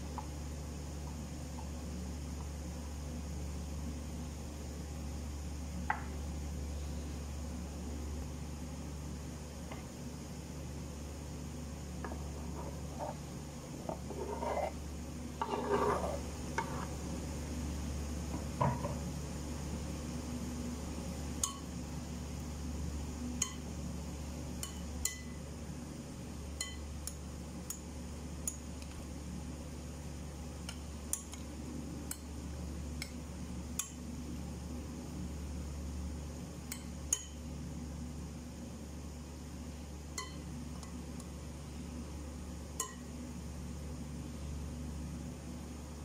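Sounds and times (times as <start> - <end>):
steady low hum: 0.0 - 46.0
salad scraping and shuffling: 12.2 - 14.8, 15.4 - 17.0
spoon clinking against bowl: 24.6 - 25.4, 26.6 - 26.8, 36.7 - 37.4, 40.2 - 40.4, 42.8 - 43.0.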